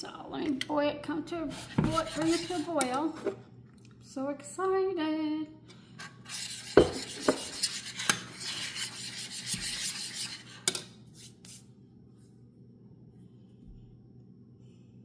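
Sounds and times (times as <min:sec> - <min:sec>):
faint steady hum: 0:00.0 - 0:15.0
metal spoon scraping saucepan: 0:01.4 - 0:03.4, 0:06.0 - 0:10.8.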